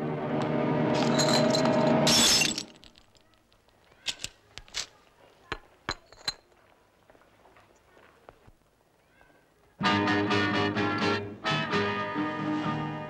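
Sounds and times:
music: 0.0 - 2.1, 9.8 - 13.0
sharp clinks of glass: 1.0 - 3.2
glass smashing: 1.0 - 3.3.

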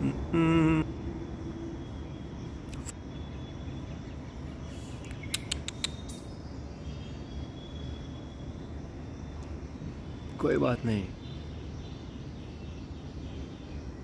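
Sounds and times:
short sharp clicks: 5.1 - 6.2.

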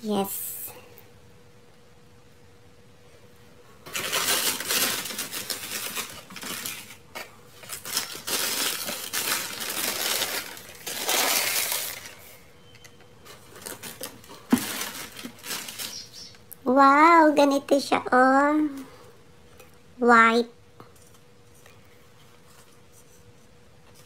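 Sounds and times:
tissue paper crinkling: 3.8 - 12.4, 13.3 - 16.4.

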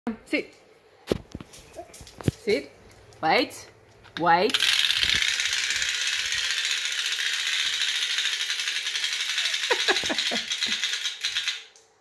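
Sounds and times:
wind-up toy clicking rattle: 4.5 - 11.8.

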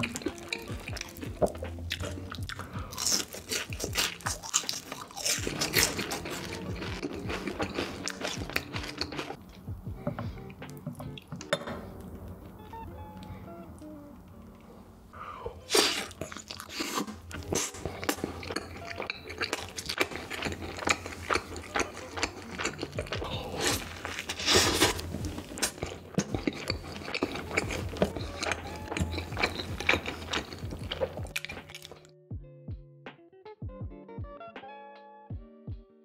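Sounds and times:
biting and chewing food: 0.0 - 11.5, 15.6 - 32.1.

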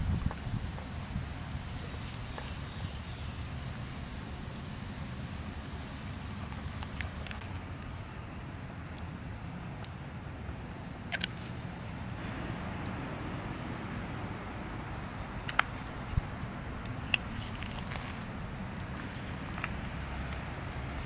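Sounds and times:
steady low rumble: 10.2 - 21.0.

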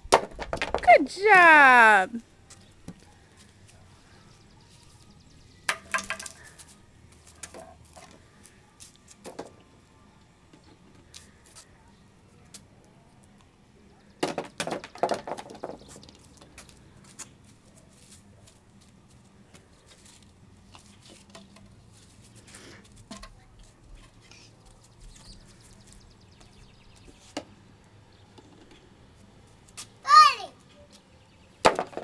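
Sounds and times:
plastic toy bat hitting ball: 5.7 - 6.4.

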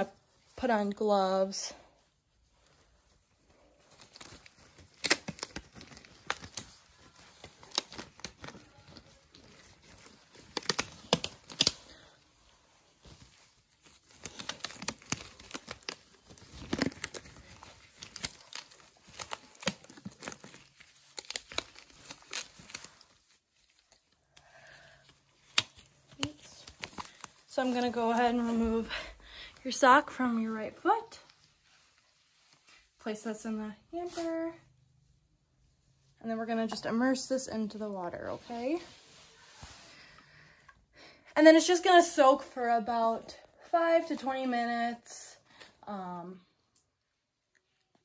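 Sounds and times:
disposable gloves crinkling and snapping: 2.0 - 29.8.

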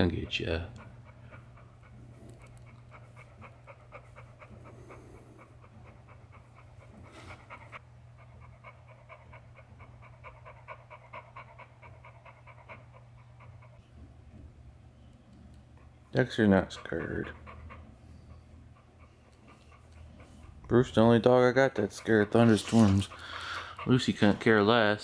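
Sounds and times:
dog panting: 0.0 - 14.5, 15.3 - 25.0.

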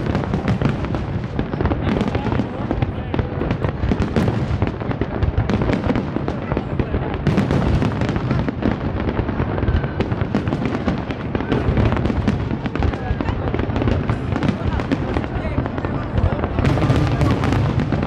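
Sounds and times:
fireworks bangs and crackles: 0.0 - 18.0.

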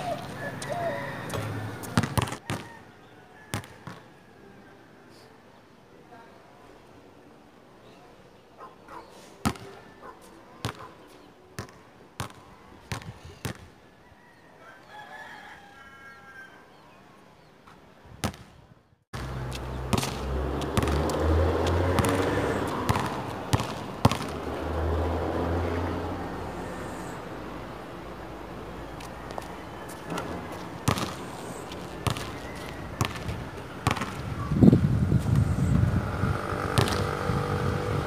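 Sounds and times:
basketball bouncing on court: 1.3 - 2.7, 10.6 - 10.9, 11.6 - 13.6, 19.2 - 24.6, 30.8 - 34.5, 36.7 - 37.2.

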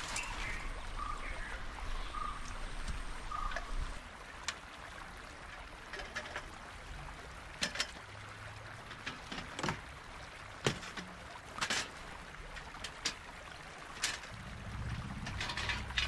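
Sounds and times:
stream rushing: 0.0 - 16.0.

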